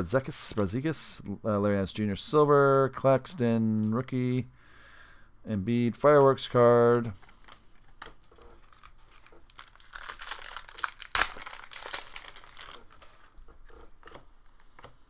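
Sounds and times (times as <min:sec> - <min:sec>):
foil wrapper crinkling: 0:07.2 - 0:14.2
foil ripping: 0:08.6 - 0:13.4.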